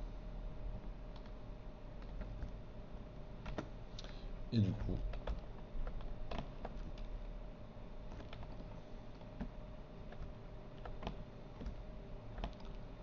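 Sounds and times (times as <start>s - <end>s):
faint steady hum: 0.0s - 13.0s
computer keyboard key clicks: 8.1s - 9.5s, 12.4s - 12.8s.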